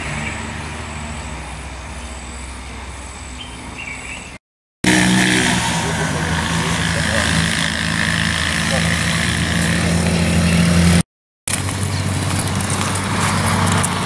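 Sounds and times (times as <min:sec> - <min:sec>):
vehicle engine running: 0:04.8 - 0:14.0.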